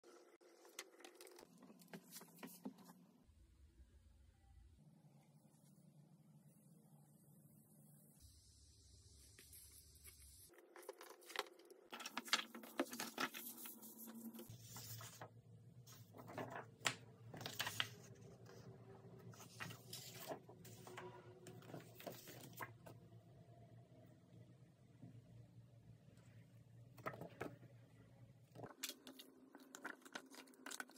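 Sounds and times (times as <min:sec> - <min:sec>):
paper and plastic rustling: 0:10.6 - 0:15.3, 0:15.9 - 0:22.8.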